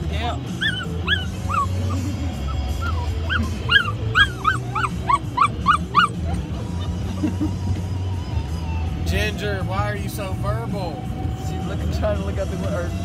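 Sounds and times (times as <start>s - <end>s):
vehicle cabin drone: 0.0s - 13.0s
puppies whining and yipping: 0.2s - 7.6s.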